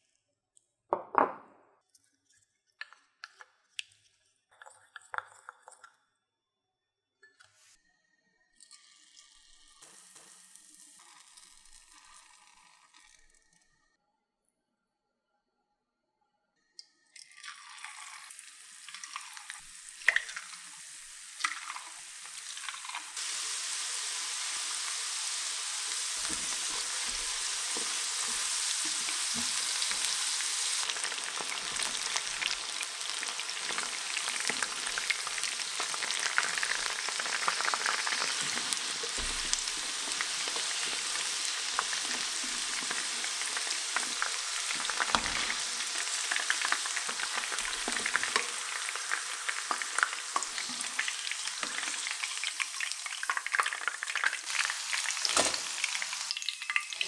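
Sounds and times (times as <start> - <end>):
chicken deep-frying in oil: 8.6 - 13.7, 17.2 - 57.0.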